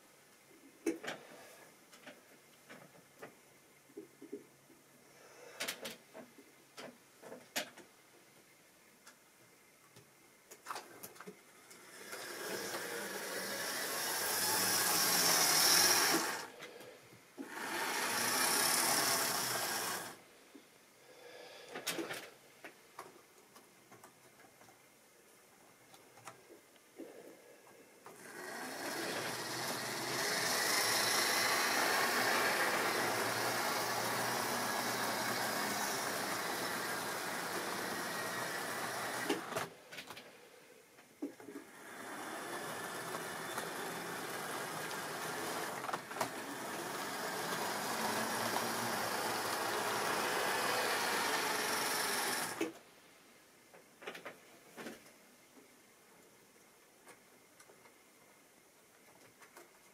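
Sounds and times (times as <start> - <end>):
model train motor whirring: 11.7 - 16.8, 17.4 - 20.2, 28.1 - 39.8, 41.5 - 52.8.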